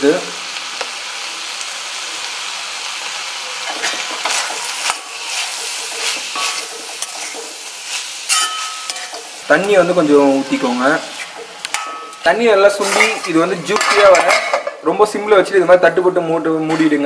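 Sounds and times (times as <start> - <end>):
vegetables sizzling in a pan: 0.0 - 15.6
spoon scraping a pan: 3.6 - 9.8, 11.0 - 14.8.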